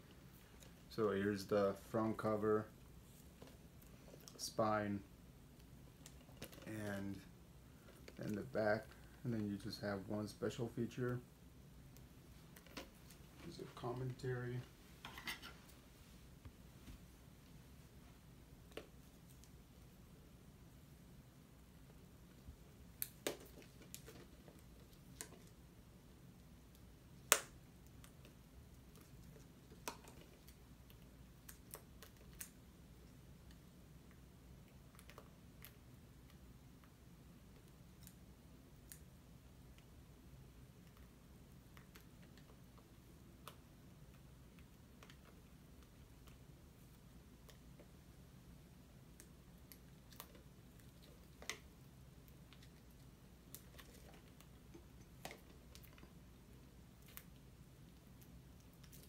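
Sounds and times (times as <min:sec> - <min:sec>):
low room hum: 0:00.0 - 0:59.0.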